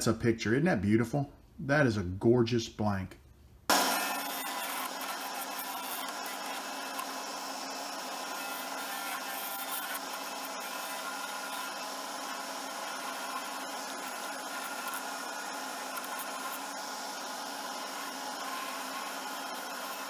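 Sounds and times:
lathe motor hum: 3.7s - 20.0s
turning tool scraping resin: 8.2s - 16.8s.

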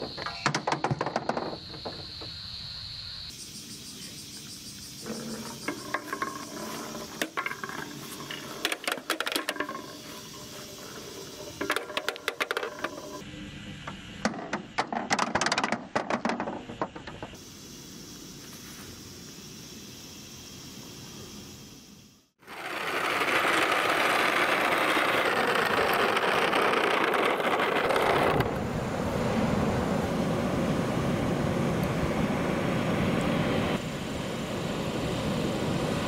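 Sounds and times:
outdoor hiss: 0.0s - 36.0s
plastic balls rattling on wood: 5.2s - 13.2s, 14.3s - 17.3s, 22.4s - 28.4s.

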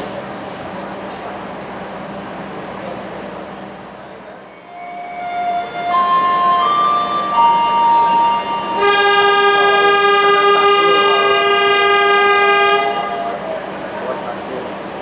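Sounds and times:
train horn chord: 4.5s - 13.5s.

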